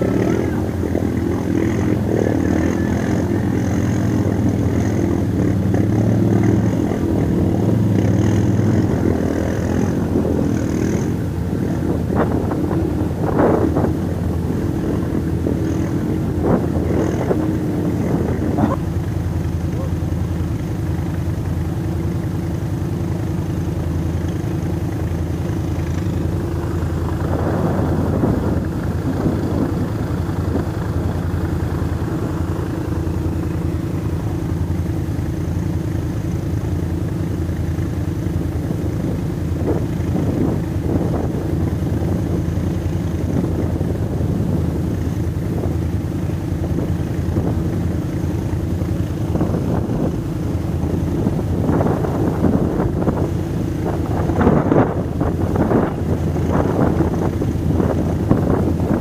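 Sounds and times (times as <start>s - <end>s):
quad bike engine idling: 0.0s - 59.0s
rough rushing noise: 0.0s - 59.0s.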